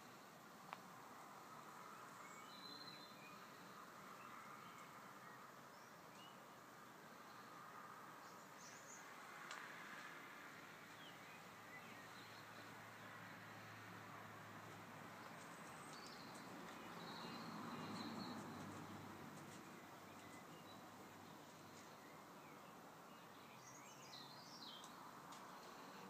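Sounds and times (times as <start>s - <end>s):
faint distant birdsong: 0.0s - 26.0s.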